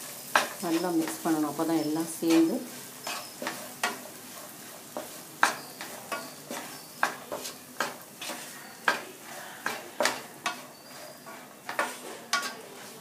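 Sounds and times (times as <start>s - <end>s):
spoon scraping and tapping pan: 0.0s - 13.0s.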